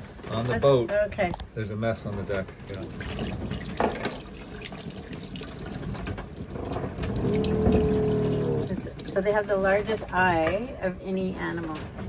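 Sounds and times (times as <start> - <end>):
tap water running into sink: 2.5 - 9.3.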